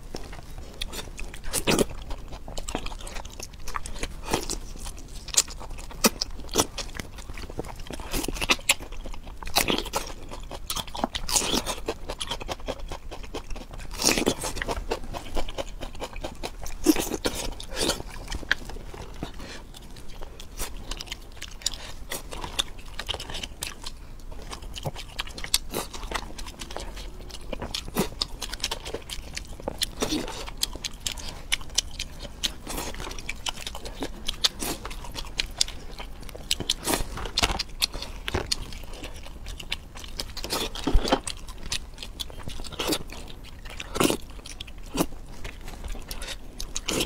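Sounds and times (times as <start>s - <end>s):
person crunching and chewing food: 0.0s - 47.0s.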